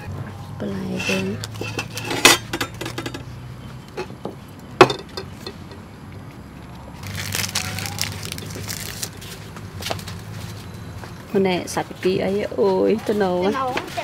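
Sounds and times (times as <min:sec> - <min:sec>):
tableware clicks: 0:04.8 - 0:05.8
rustling handling noise: 0:07.0 - 0:10.7.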